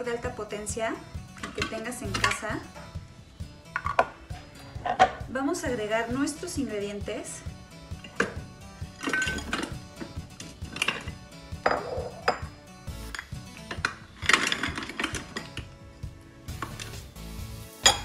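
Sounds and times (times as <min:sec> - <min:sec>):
frozen chunks clattering into steel bowl: 0:14.0 - 0:15.6.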